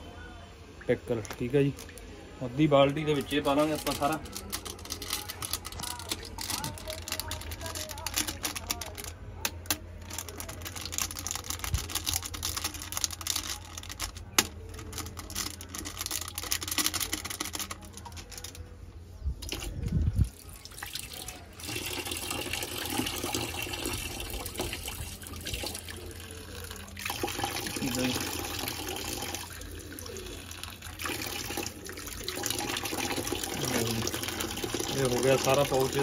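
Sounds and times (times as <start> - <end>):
sachet rustling and tapping: 3.1 - 18.7.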